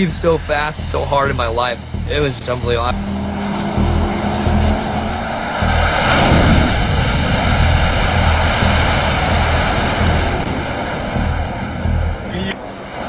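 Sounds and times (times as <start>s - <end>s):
jet engine roar: 2.8s - 13.0s.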